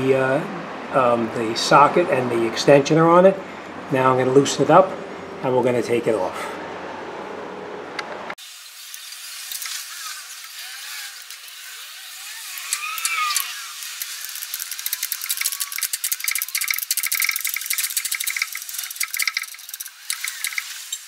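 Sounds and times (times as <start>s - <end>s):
ratchet clicking: 8.6s - 21.0s.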